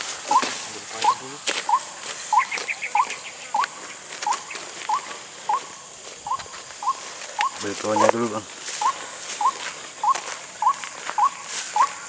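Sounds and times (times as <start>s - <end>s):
light footsteps on grass: 0.0s - 12.0s
bird calling upward-hooked note: 0.3s - 5.7s, 8.8s - 12.0s.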